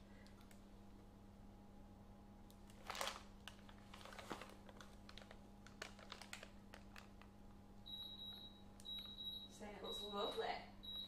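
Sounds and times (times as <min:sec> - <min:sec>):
low steady hum: 0:00.0 - 0:11.0
plastic piping bag crinkling: 0:02.5 - 0:07.7.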